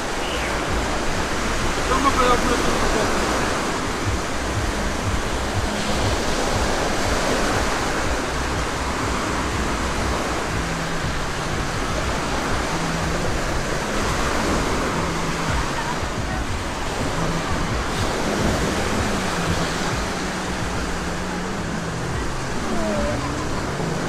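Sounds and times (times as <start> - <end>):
waves washing on sandy beach: 0.0 - 24.0.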